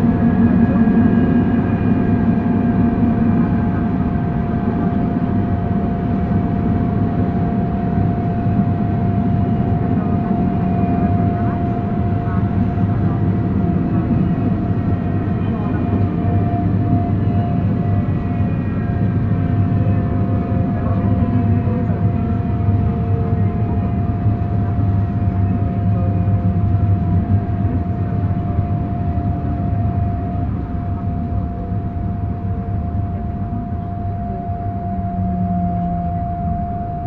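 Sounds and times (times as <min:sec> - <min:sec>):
constant electric whine: 0:00.0 - 0:37.0
electric train rumble: 0:00.0 - 0:37.0.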